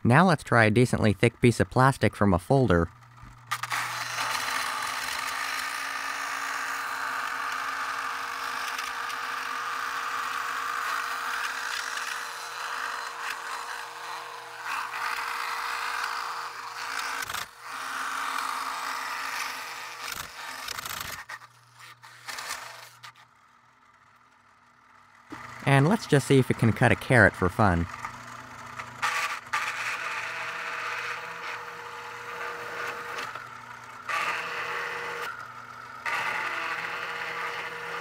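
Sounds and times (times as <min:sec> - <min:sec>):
toy table saw motor running: 0:00.6 - 0:38.0
saw blade scraping plastic: 0:03.4 - 0:23.3, 0:27.9 - 0:38.0.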